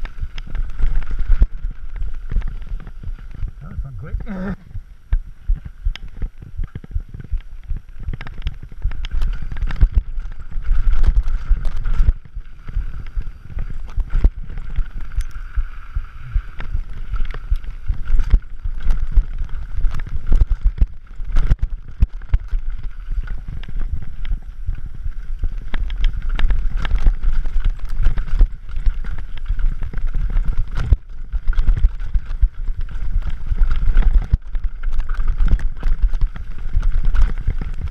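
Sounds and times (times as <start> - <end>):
bike knocking and rattling: 0.0 - 3.6, 4.5 - 37.9
tyres rolling over dirt and stones: 16.5 - 37.9.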